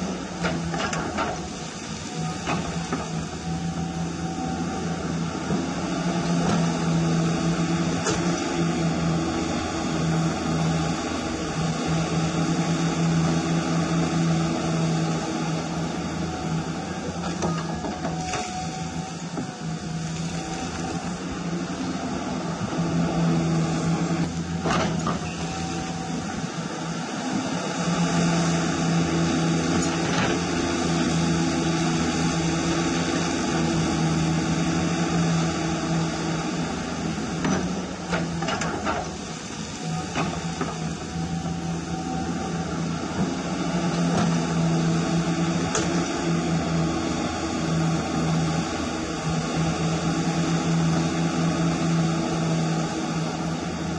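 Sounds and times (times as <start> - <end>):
electric pump drone: 0.0 - 53.9.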